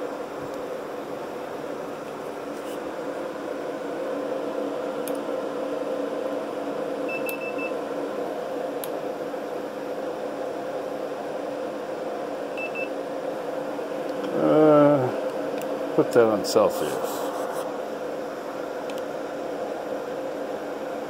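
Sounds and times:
inverter hum and fan noise: 0.0s - 21.0s
thermometer beeps: 7.1s - 7.8s, 12.6s - 12.9s.

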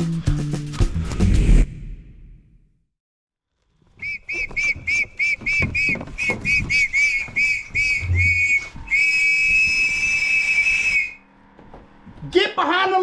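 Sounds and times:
dull low thumps: 4.0s - 10.1s
shrill whistle blasts: 4.0s - 11.2s.

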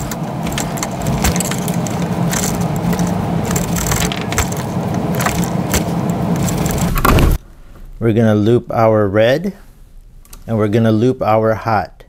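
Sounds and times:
wire strippers clicking and jangling: 0.0s - 7.1s
steady loud noise: 0.0s - 8.2s.

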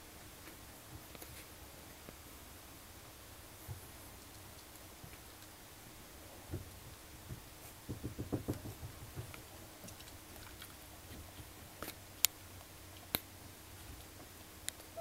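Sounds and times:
soft rustles and low thumps: 3.4s - 5.3s, 6.1s - 11.8s.

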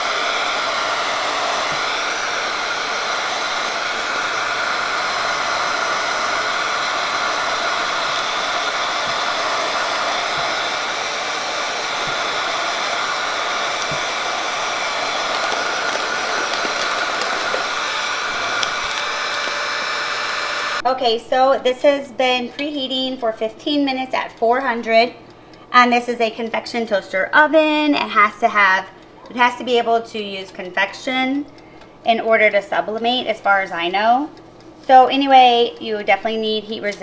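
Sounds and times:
heat gun blowing hot air: 0.0s - 20.8s.

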